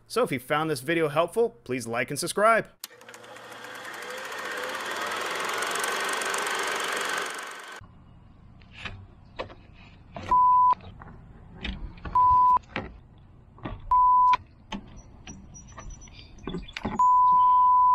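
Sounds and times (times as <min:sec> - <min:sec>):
censor bleeps: 0:10.3 - 0:10.8, 0:12.2 - 0:12.6, 0:13.9 - 0:14.4, 0:17.0 - 0:17.9.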